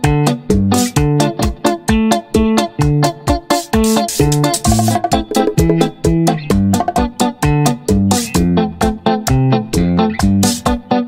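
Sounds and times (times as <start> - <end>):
plucked guitar chords: 0.0 - 11.0
percussion beat: 2.8 - 8.5.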